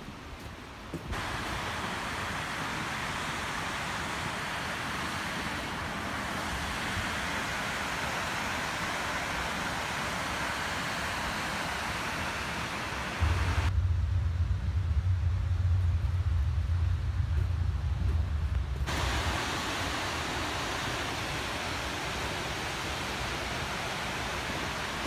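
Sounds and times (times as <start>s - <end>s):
waterfall rushing: 1.1s - 13.7s, 18.9s - 25.0s
loud low rumble: 13.2s - 20.1s.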